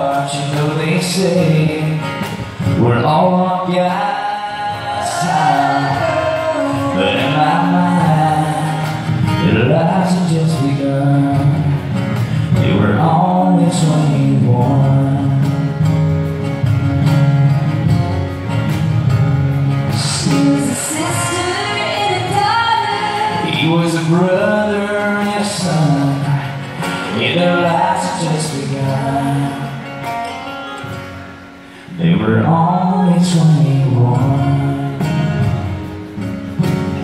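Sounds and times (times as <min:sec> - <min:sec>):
acoustic guitar: 0:00.0 - 0:37.0
man and woman singing together: 0:02.8 - 0:11.8, 0:20.0 - 0:29.8, 0:31.9 - 0:35.2.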